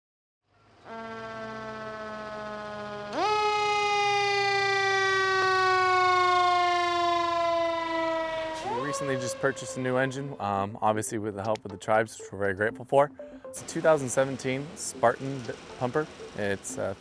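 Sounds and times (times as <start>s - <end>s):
fire engine siren: 0.8s - 10.6s.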